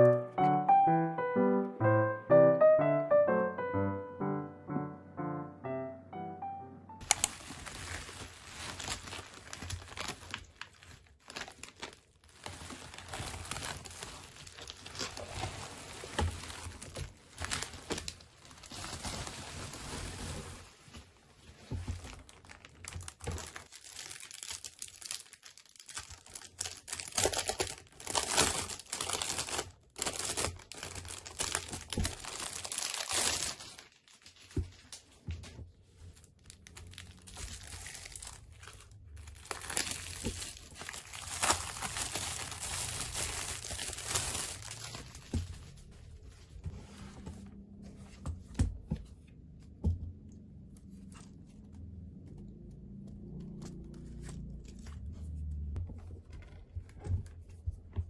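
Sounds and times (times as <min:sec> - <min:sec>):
plastic packaging crinkling: 0:07.0 - 0:20.9, 0:21.8 - 0:34.6, 0:36.0 - 0:46.0.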